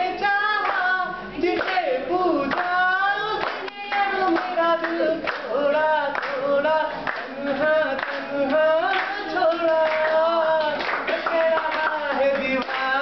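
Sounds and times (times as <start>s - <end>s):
group singing unaccompanied: 0.0s - 13.0s
hand claps: 0.6s - 0.9s, 1.6s - 1.8s, 2.5s - 2.8s, 3.4s - 5.5s, 6.1s - 13.0s.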